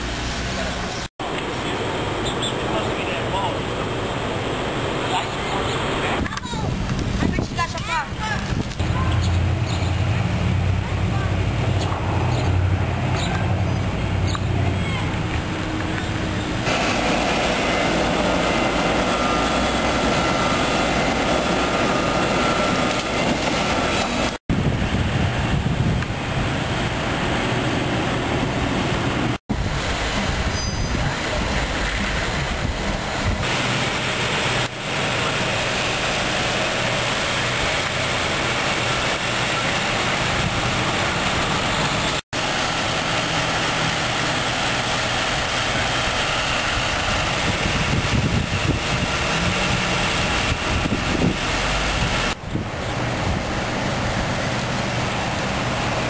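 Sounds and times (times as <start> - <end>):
road traffic rushing hum: 0.0 - 56.0
trucks passing: 0.0 - 56.0.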